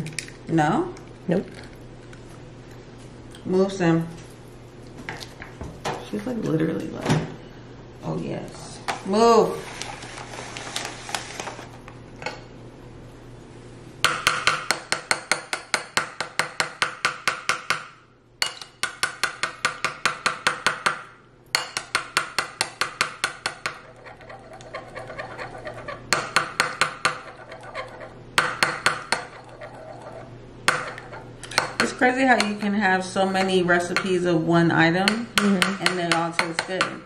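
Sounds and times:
fork whisking in a ceramic bowl: 22.6 - 32.7.

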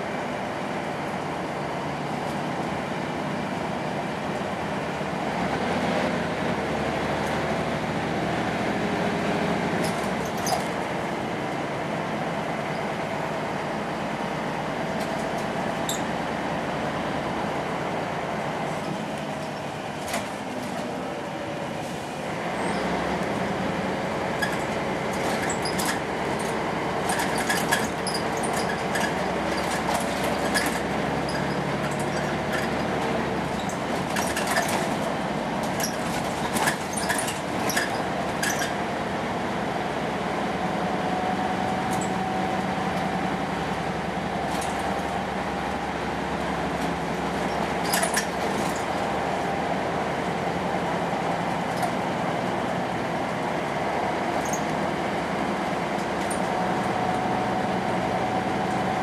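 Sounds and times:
bus diesel engine running: 0.0 - 59.0
road noise: 0.0 - 59.0
bus body clicks and rattles: 9.6 - 11.2, 14.8 - 16.4, 17.8 - 22.0, 22.6 - 59.0.

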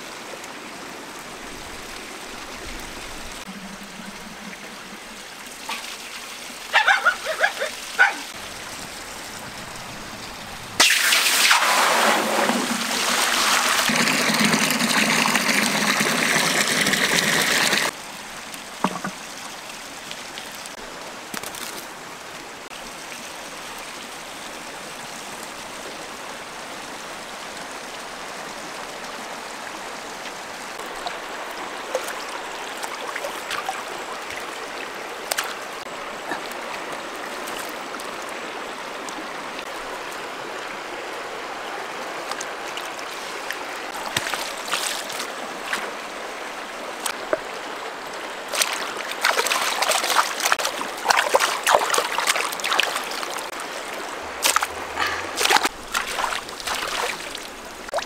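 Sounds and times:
river running over stones: 0.0 - 58.0
hands splashing in water: 48.5 - 53.4, 54.4 - 57.5.

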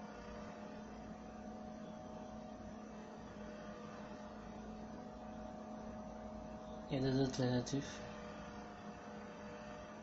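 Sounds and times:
faint steady hum: 0.0 - 10.0.

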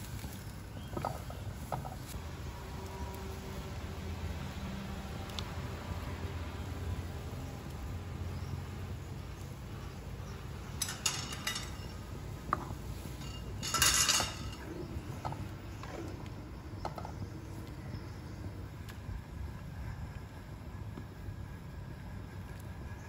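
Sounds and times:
broth boiling: 0.0 - 23.0
steady low rumble: 0.0 - 23.0.

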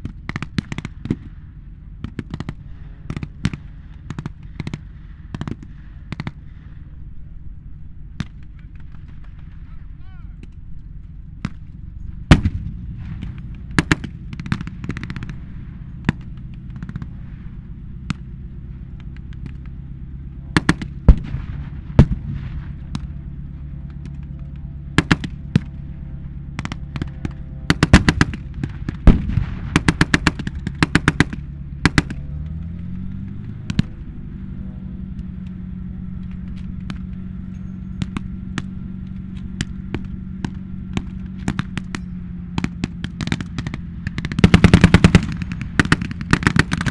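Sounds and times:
low engine drone: 0.0 - 46.9
blank gunshots: 12.3 - 15.5, 20.5 - 23.1, 26.6 - 32.3, 42.6 - 46.9.

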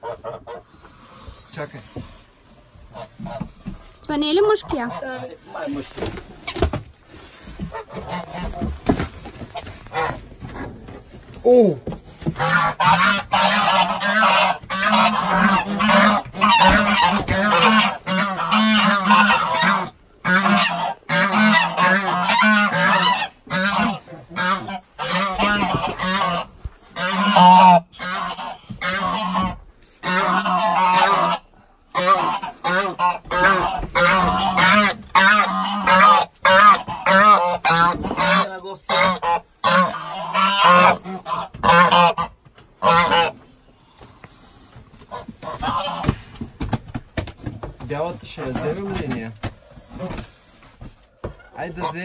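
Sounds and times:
geese honking: 0.0 - 1.8, 2.8 - 5.8, 7.5 - 10.7, 12.3 - 43.6, 45.0 - 46.2, 51.3 - 52.0.

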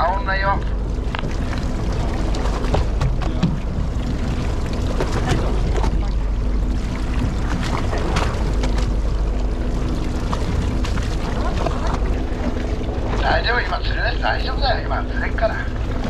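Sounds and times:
boat engine rumble: 0.0 - 16.0.

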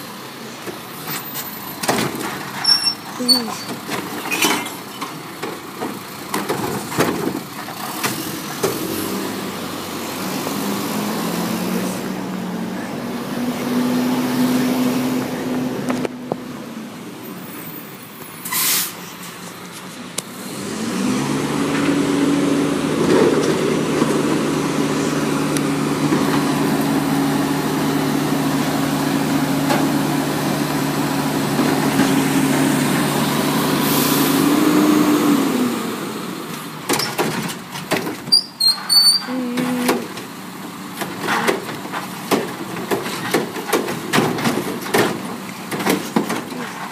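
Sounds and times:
garbage truck engine and hydraulics: 0.0 - 46.9
carts knocking and clattering: 0.7 - 8.9, 36.8 - 46.9
short air hiss: 18.4 - 19.0.

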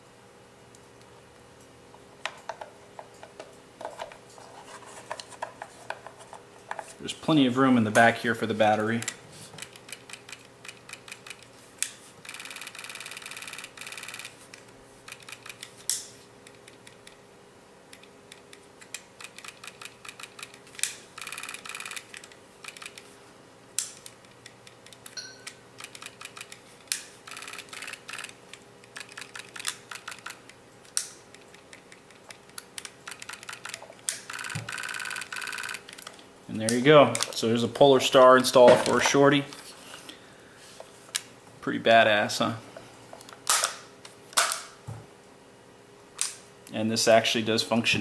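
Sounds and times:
rapid rattling clicks: 18.0 - 23.1, 25.8 - 26.6, 27.3 - 36.1.

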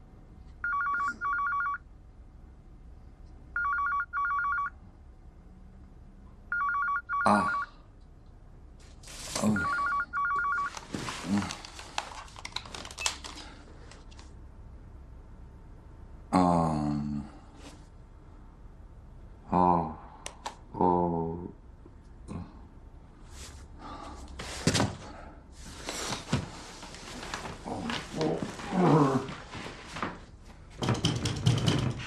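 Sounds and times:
rustling and knocking: 25.8 - 32.0.

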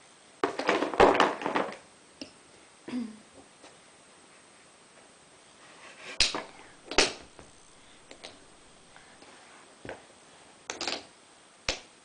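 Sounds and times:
wooden toy blocks clacking: 10.7 - 11.1.

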